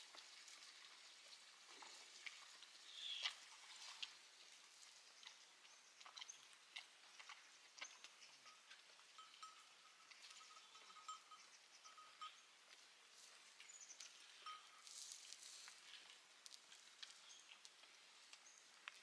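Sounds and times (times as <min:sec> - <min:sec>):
wood fire crackling: 0:14.9 - 0:19.0.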